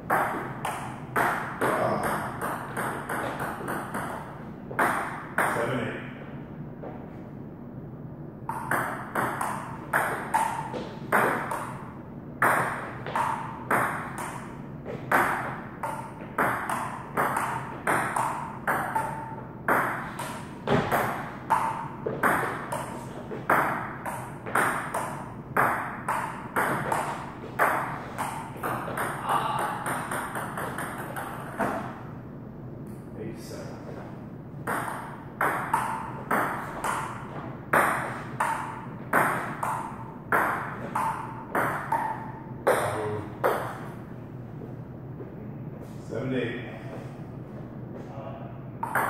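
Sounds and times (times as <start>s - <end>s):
table tennis ball rally: 0.1s - 5.8s, 8.5s - 32.0s, 34.6s - 43.9s, 48.8s - 49.0s.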